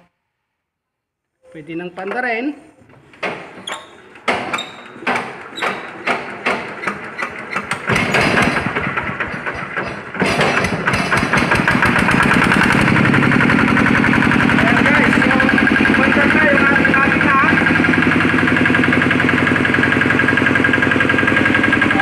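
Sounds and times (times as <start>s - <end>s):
engine being hand-cranked: 3.0s - 22.0s
diesel engine running: 7.0s - 22.0s.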